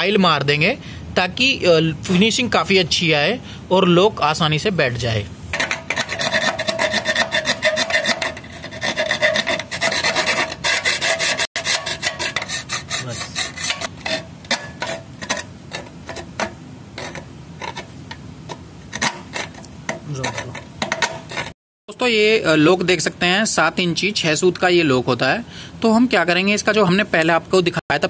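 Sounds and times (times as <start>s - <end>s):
hand file rasping on metal: 5.6s - 16.3s.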